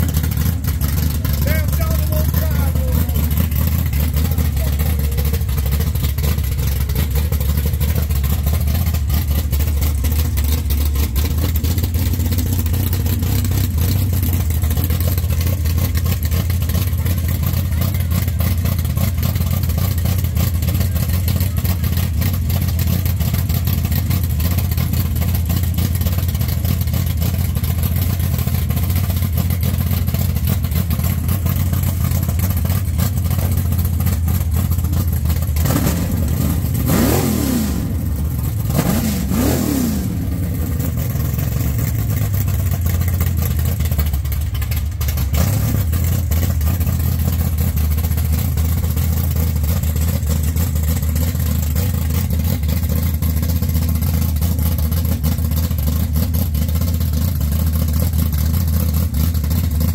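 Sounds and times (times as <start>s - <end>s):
truck engine idling loudly: 0.0s - 59.9s
engine throttle revs: 35.4s - 42.1s.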